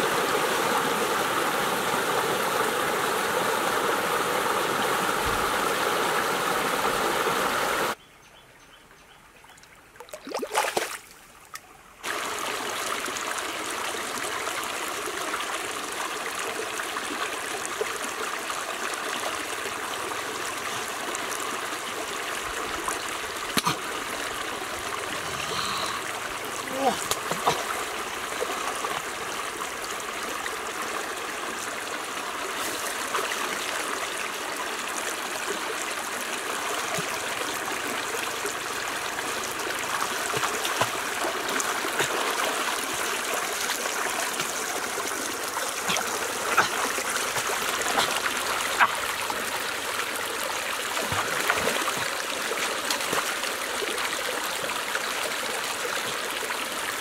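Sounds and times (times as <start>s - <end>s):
stream running over rocks: 0.0s - 8.0s, 9.8s - 57.0s
splashes of someone wading: 10.0s - 11.2s, 26.9s - 28.6s, 39.9s - 49.6s, 50.8s - 54.0s.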